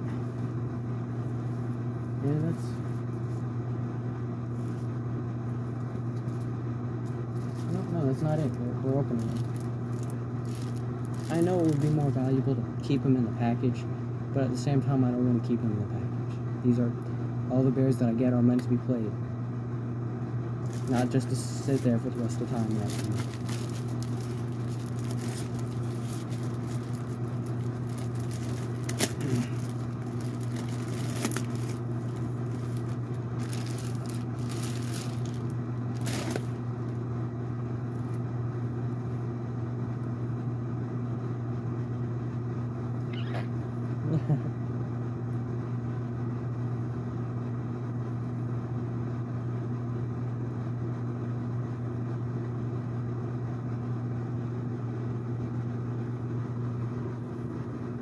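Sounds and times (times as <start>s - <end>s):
steady low hum: 0.0s - 58.0s
plastic packaging crinkling: 7.4s - 12.2s, 20.6s - 37.0s.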